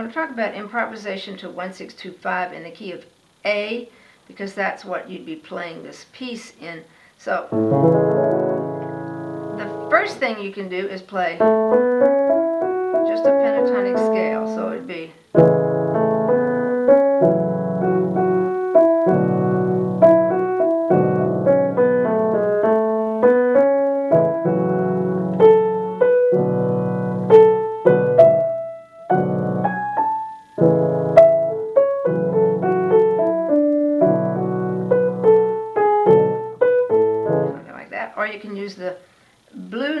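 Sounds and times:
piano improvisation: 7.5s - 10.4s, 11.4s - 37.7s.

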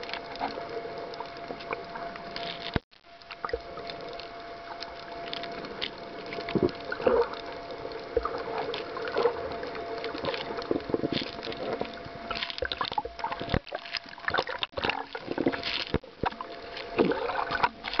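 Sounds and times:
faint steady hum: 0.0s - 18.0s
water sloshing against camera: 0.0s - 18.0s.

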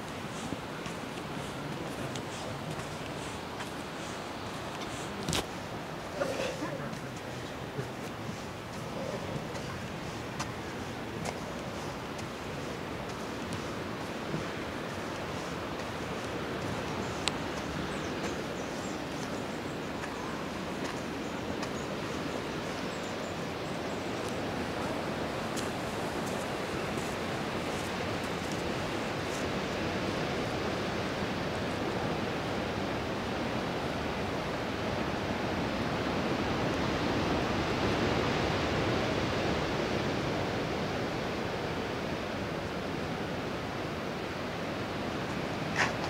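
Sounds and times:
distant ocean surf: 0.0s - 46.0s.

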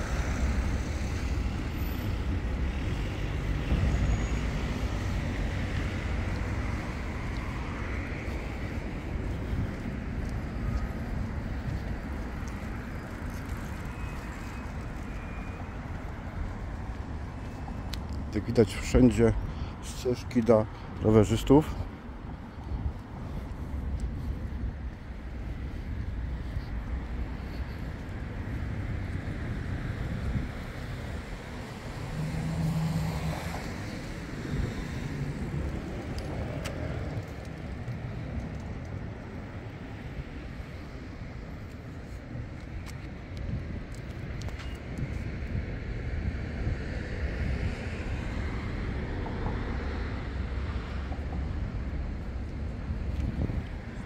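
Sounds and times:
cars passing: 0.0s - 54.0s
city street traffic hum: 0.0s - 54.0s.

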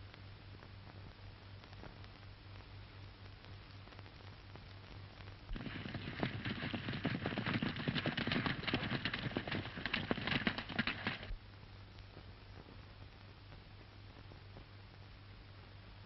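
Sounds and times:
film soundtrack hiss and hum: 0.0s - 16.0s
horses galloping hooves: 5.5s - 11.4s.

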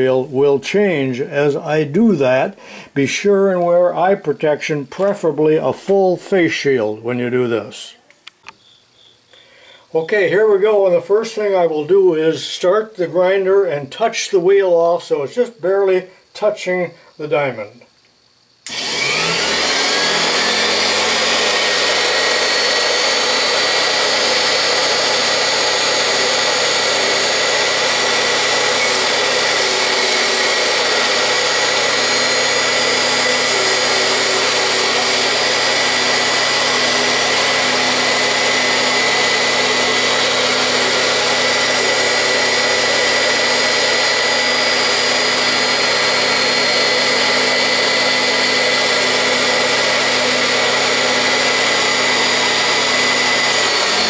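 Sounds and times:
grinder high-pitched whine: 18.6s - 54.0s.

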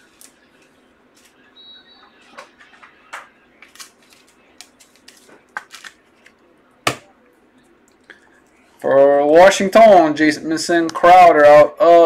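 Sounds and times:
trading cards clicking and rustling: 2.7s - 7.0s.

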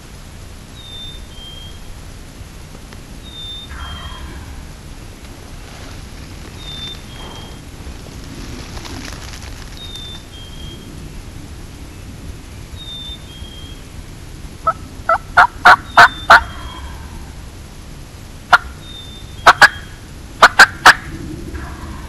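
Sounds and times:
turkey yelping: 3.6s - 4.6s, 14.6s - 17.2s, 19.4s - 22.0s.

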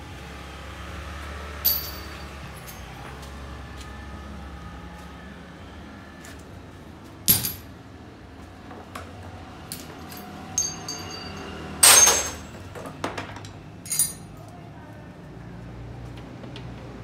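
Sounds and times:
metal tools clinking and clattering: 1.6s - 2.9s, 7.3s - 7.7s, 9.7s - 14.4s.

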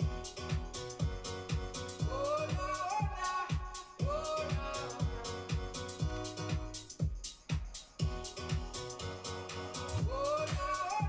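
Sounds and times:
pop music with drum beat: 0.0s - 11.0s.

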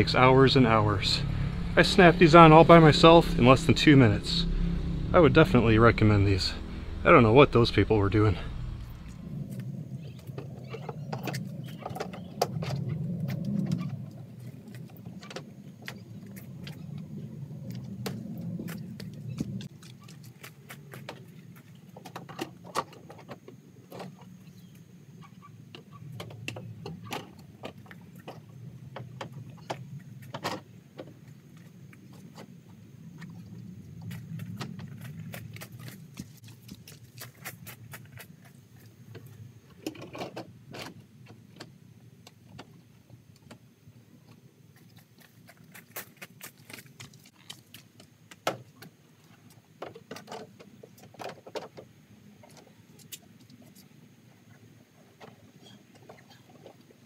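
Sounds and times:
steady low rumble: 0.0s - 10.3s.

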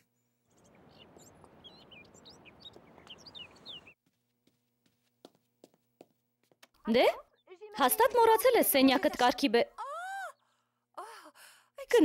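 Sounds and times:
faint bird chirps: 0.0s - 4.0s.

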